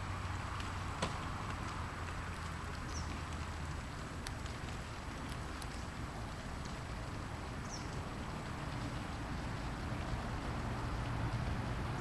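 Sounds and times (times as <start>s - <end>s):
background hiss: 0.0s - 12.0s
faint clicks: 0.6s - 9.6s.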